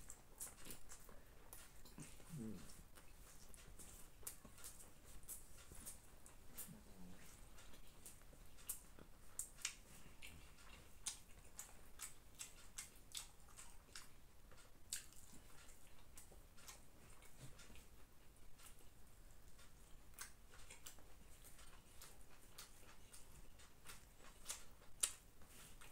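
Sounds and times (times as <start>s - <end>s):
person chewing: 0.0s - 25.9s.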